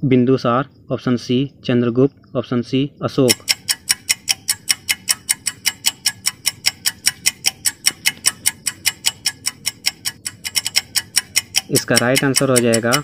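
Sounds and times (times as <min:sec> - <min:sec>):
fast clock ticking: 0:03.2 - 0:13.0.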